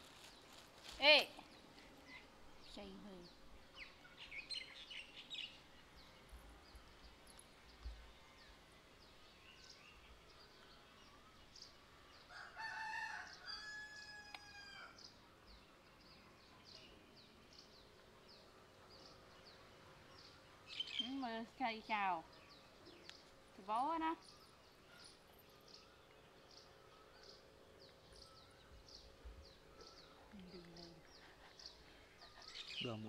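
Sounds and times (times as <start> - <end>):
small birds chirping: 0.0 - 13.6, 14.4 - 33.0
rooster crowing: 12.3 - 15.0.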